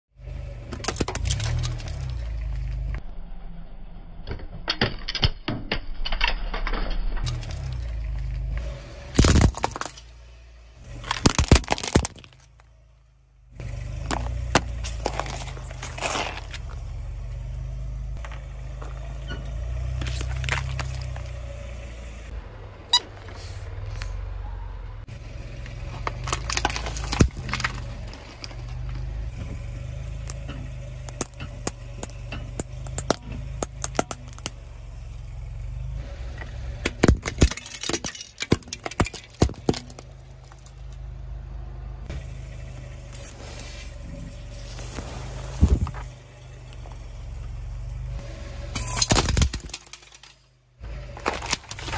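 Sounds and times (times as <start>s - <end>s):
car rumble: 0.1s - 51.9s
toy cars cracking and crunching: 0.6s - 2.3s, 9.1s - 10.1s, 10.9s - 12.7s, 14.0s - 16.8s, 20.0s - 21.4s, 25.6s - 29.0s, 31.0s - 34.6s, 36.8s - 41.0s, 48.7s - 51.9s.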